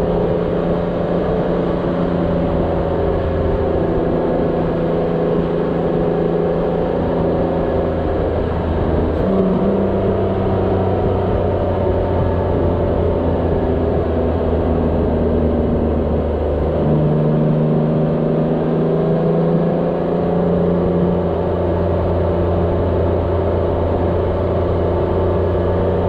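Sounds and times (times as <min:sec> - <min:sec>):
wind noise: 0:00.0 - 0:17.4
motorcycle engine cruising: 0:00.0 - 0:26.0.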